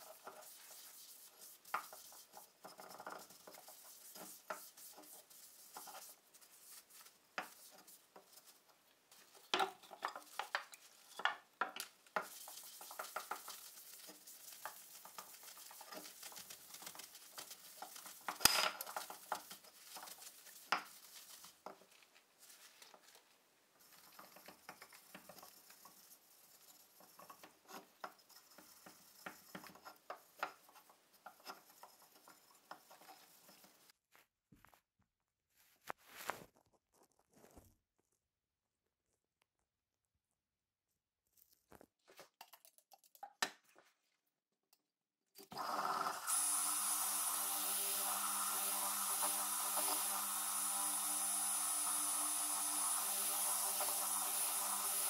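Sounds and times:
cloth rubbing on wood: 0:00.0 - 0:09.4, 0:12.2 - 0:23.1.

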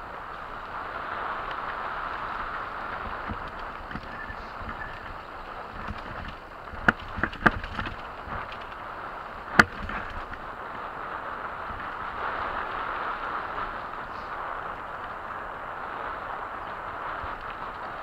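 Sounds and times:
bike tyre and wind noise: 0:00.0 - 0:18.0
bike knocking over rough ground: 0:01.6 - 0:10.6.

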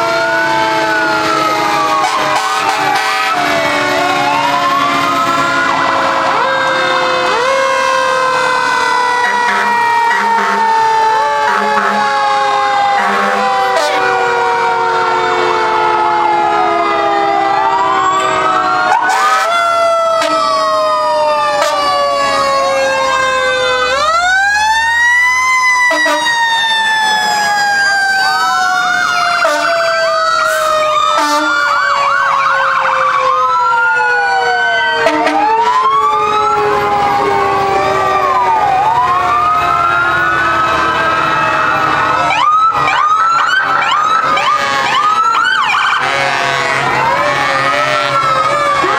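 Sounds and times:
fire truck sirens wailing: 0:00.0 - 0:48.9
siren rapid warble: 0:00.0 - 0:48.9.

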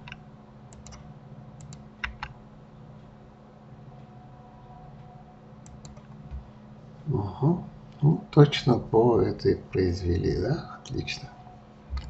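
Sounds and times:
mouse and keyboard clicks: 0:00.0 - 0:02.4
steady low hum: 0:00.0 - 0:12.0.

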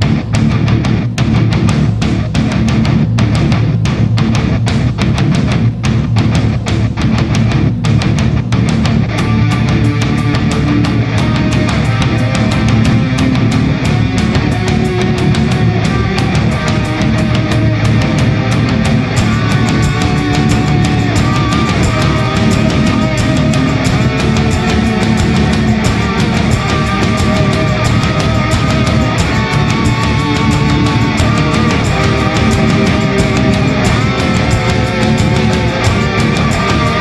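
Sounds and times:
heavy rock music: 0:00.0 - 0:37.0.

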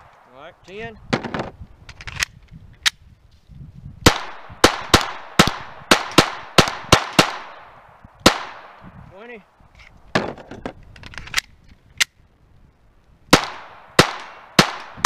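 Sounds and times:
pistol shots: 0:04.0 - 0:08.8, 0:13.3 - 0:15.0.

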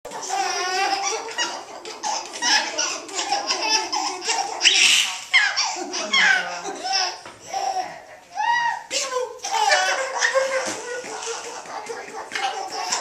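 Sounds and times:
baby squealing: 0:00.1 - 0:07.8, 0:08.4 - 0:11.4
baby laughing: 0:00.1 - 0:13.0.

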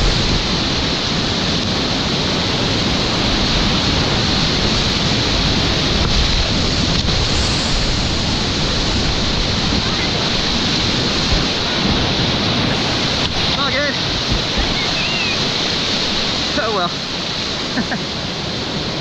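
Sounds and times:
whitewater rapids rushing: 0:00.0 - 0:19.0.

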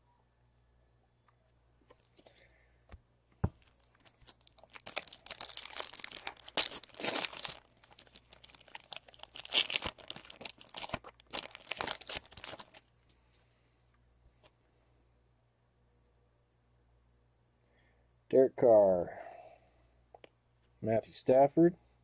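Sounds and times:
wrapper tearing and crinkling: 0:03.6 - 0:12.9.

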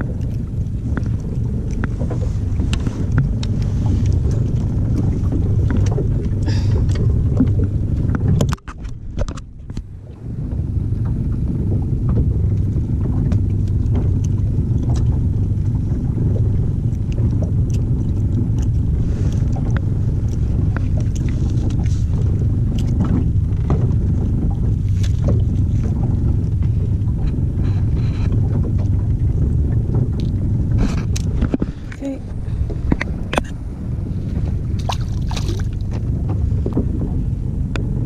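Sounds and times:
clicks and taps handling fish: 0:00.0 - 0:09.9, 0:16.9 - 0:23.9, 0:29.9 - 0:33.6
boat engine low rumble: 0:00.0 - 0:38.0.

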